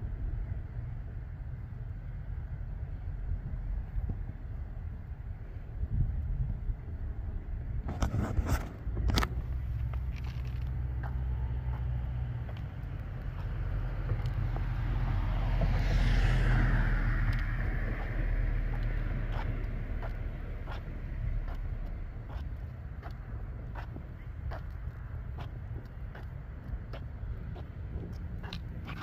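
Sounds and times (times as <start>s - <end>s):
steady low rumble: 0.0s - 29.0s
car passing by: 10.6s - 22.5s.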